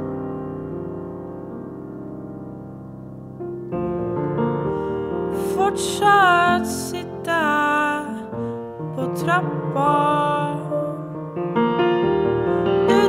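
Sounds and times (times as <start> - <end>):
piano accompaniment: 0.0 - 13.0
woman singing: 5.4 - 11.2.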